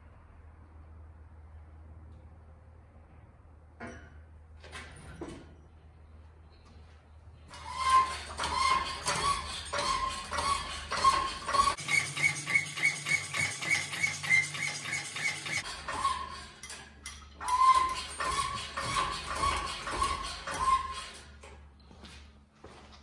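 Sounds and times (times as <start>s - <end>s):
engine hoist squeaking: 7.5s - 21.6s.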